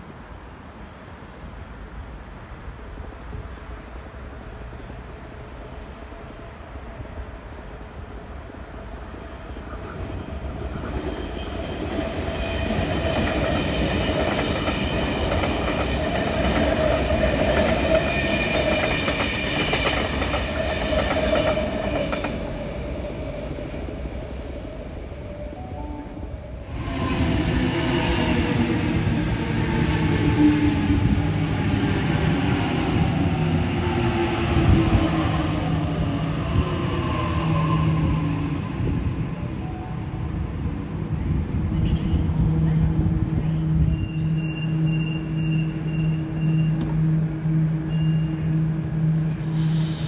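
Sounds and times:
train wheels rumbling on rail: 0:08.0 - 0:25.4, 0:26.6 - 0:50.0
train equipment pulsing hum: 0:38.7 - 0:50.0
high ringing tone: 0:47.8 - 0:48.8
hiss: 0:49.4 - 0:50.0.

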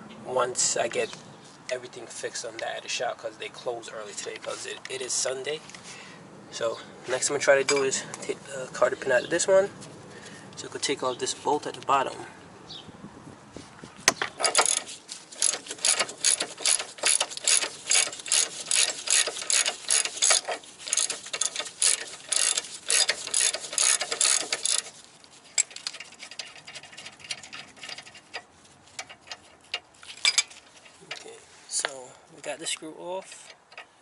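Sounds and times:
hand ratchet clicking: 0:14.4 - 0:25.0.

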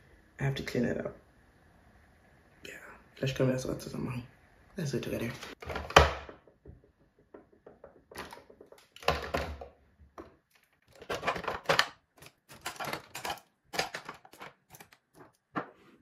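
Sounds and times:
bottles clicking and clattering: 0:05.6 - 0:15.8.

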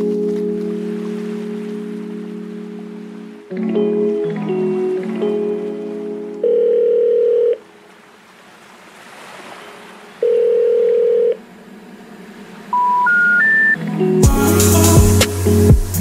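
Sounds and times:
telephone line tones: 0:00.0 - 0:07.8, 0:10.2 - 0:11.4, 0:12.7 - 0:14.2.

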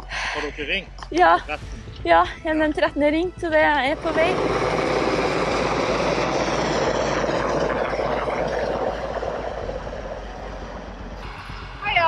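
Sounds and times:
helicopter rotor beating: 0:01.1 - 0:12.0
helicopter turbine noise: 0:01.4 - 0:12.0.

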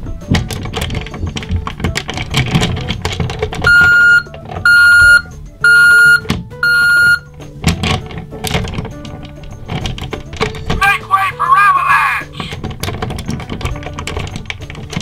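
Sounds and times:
plastic handling clicks: 0:00.3 - 0:05.3, 0:12.4 - 0:15.0
toy speaker beeps: 0:03.7 - 0:07.3.

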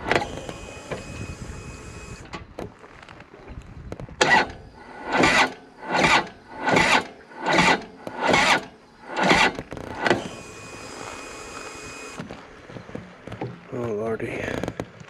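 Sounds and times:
motorcycle starter cranking: 0:00.0 - 0:02.6, 0:04.1 - 0:13.4
faint steady whine: 0:00.0 - 0:15.0.

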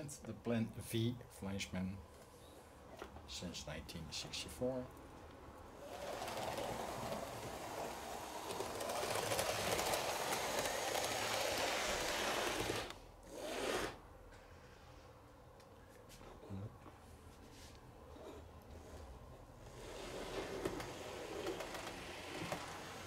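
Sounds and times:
model train whirring rattle: 0:05.8 - 0:14.0, 0:19.7 - 0:23.0.

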